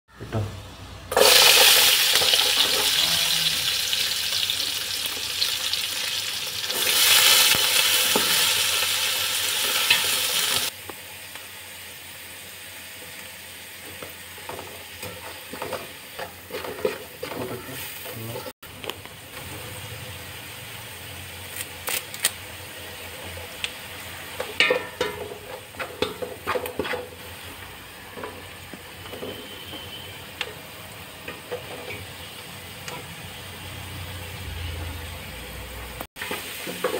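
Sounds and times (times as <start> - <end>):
onions sizzling in hot oil: 0.4 - 36.9
wooden spatula scraping a pot: 14.5 - 18.5, 25.0 - 27.4.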